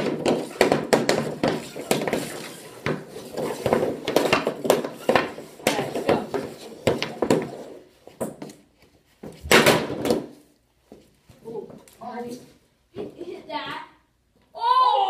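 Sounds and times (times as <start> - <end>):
hockey stick clacking a puck: 0.0 - 8.6
loud sharp impact: 9.4 - 10.1.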